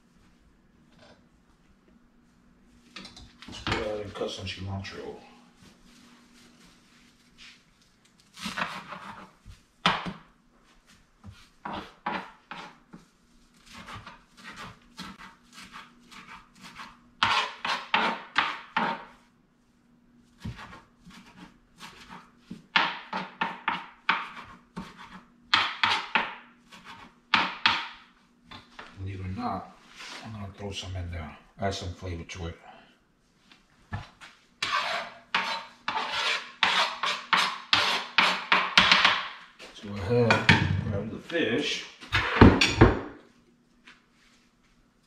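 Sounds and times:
knife chopping on cutting board: 13.7s - 19.1s, 20.4s - 28.0s.

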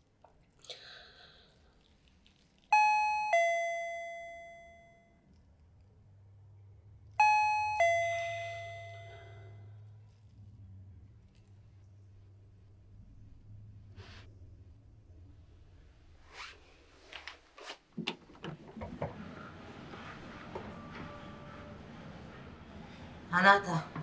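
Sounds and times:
two-tone doorbell chime: 2.8s - 5.1s, 7.2s - 9.6s.

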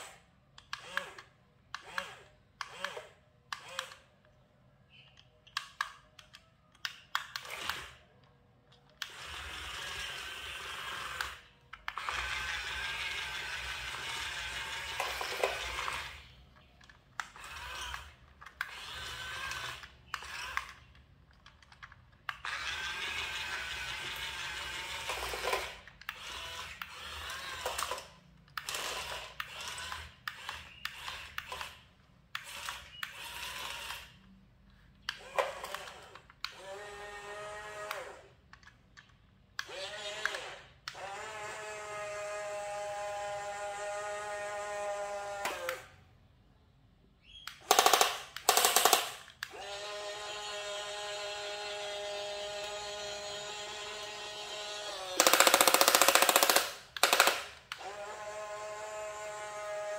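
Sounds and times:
toy gear motors whirring: 0.0s - 46.0s, 47.3s - 59.9s
short clicks: 0.5s - 9.2s, 47.2s - 49.6s.

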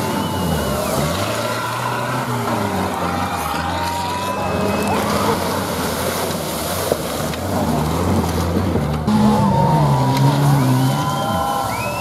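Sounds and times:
off-road vehicle engines revving: 0.0s - 12.0s
hiss of mud and water: 5.0s - 7.9s.

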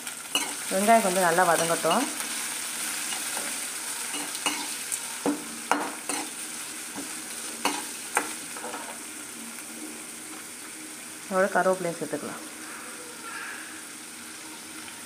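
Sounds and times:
onions sizzling in oil: 0.0s - 15.0s
metal spoon scraping pan: 0.3s - 0.7s, 3.0s - 4.8s, 5.7s - 6.3s.

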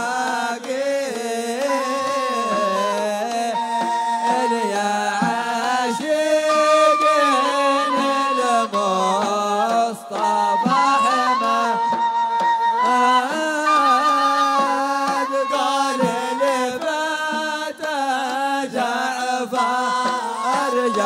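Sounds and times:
men singing long held notes: 0.0s - 21.0s.

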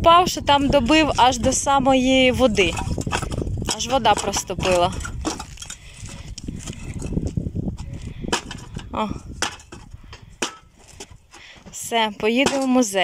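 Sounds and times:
metal knocking and clattering on ground: 2.4s - 7.3s, 8.3s - 11.8s.

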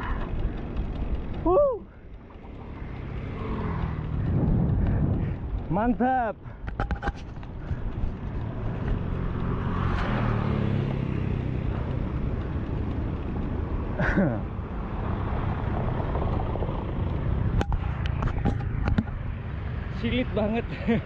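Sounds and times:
bicycle tyres on wet paving: 0.0s - 18.7s
motorbike passing: 0.0s - 21.0s
wind on microphone: 3.2s - 5.7s.

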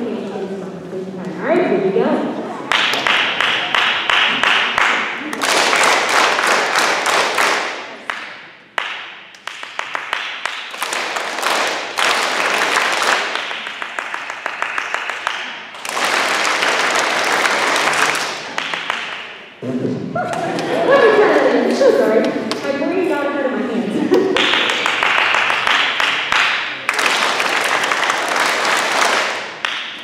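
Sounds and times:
children clapping: 2.7s - 19.4s, 24.3s - 30.0s.

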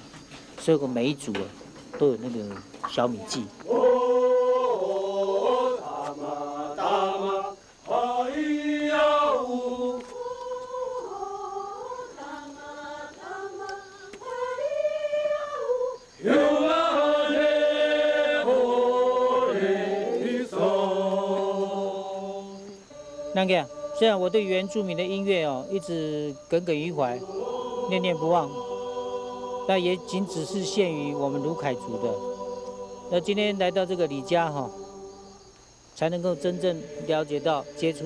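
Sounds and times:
group singing in unison: 3.3s - 35.4s, 36.0s - 38.0s.

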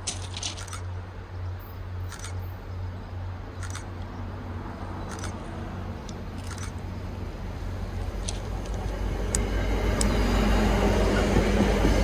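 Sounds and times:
train rumbling: 0.0s - 12.0s
sharp high ticks: 2.1s - 2.5s, 3.6s - 4.1s, 5.0s - 6.8s.

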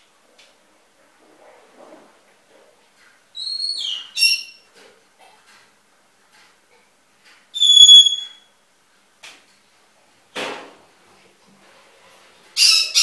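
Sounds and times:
bird chirp: 3.4s - 4.6s, 7.6s - 8.5s
bird high whistle: 3.4s - 4.6s, 7.6s - 8.5s.

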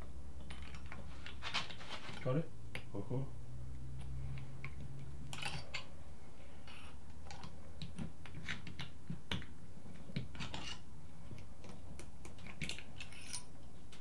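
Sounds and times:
small metallic clicks and clinks: 4.0s - 5.9s, 12.2s - 14.0s.

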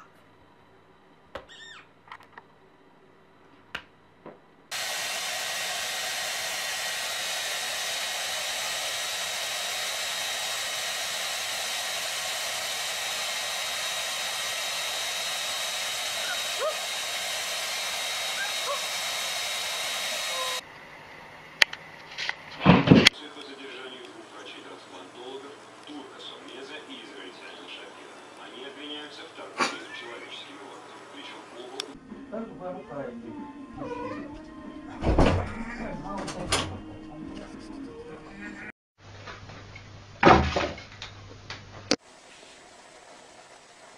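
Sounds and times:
hair dryer blowing: 4.7s - 20.6s.

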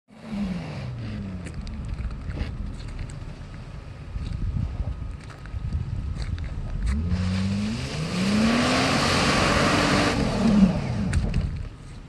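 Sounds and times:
car engine revving under load: 5.9s - 11.8s.

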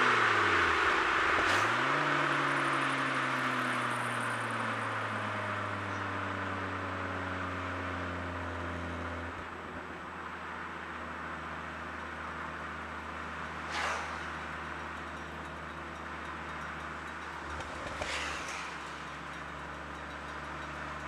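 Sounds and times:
turbocharged car engine revving: 0.0s - 5.9s, 12.9s - 21.0s.

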